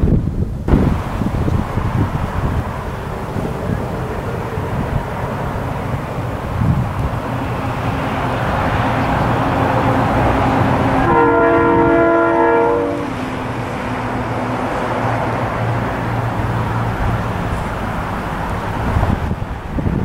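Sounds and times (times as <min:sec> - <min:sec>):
train rumble: 0:00.0 - 0:20.0
train horn blast: 0:07.5 - 0:13.4.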